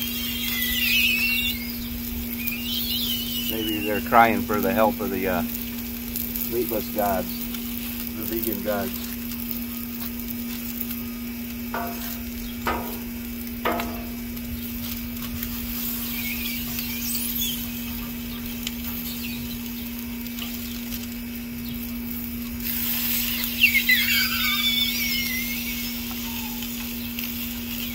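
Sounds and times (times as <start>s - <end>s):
high wavering screeches: 0.0s - 4.3s, 11.8s - 13.1s, 15.4s - 19.6s, 22.7s - 27.0s
sausage patties sizzling on griddle: 0.0s - 27.9s
short squeaks: 23.2s - 26.6s.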